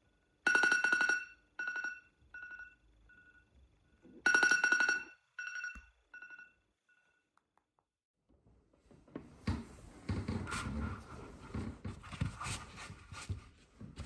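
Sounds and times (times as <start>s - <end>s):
phone alarm ringtone beeping: 0.4s - 3.5s, 4.2s - 7.2s.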